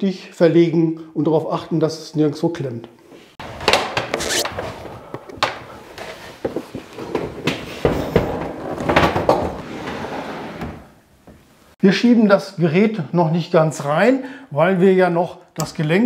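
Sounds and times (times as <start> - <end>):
refrigerator scraping and rumbling: 9.6 - 10.7.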